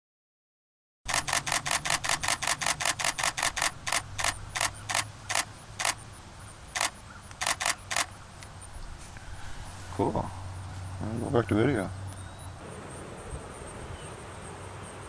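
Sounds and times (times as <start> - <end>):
camera shutter firing: 1.1 - 6.0, 6.8 - 8.1.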